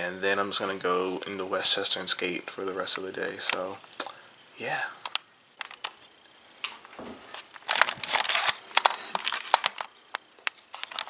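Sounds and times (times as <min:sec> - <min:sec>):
camcorder handling rustle: 0:05.0 - 0:06.0, 0:06.6 - 0:11.0
sharp clicks: 0:05.0 - 0:06.0.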